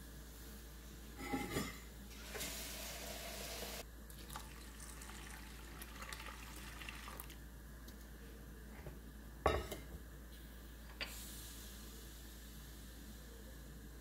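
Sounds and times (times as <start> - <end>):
water pouring into metal bowl: 2.3 - 7.4.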